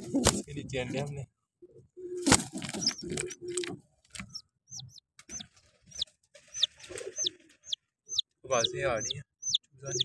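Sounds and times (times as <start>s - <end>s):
pigeon cooing: 1.6s - 5.5s, 6.5s - 10.0s
chick peeping: 1.7s - 10.0s.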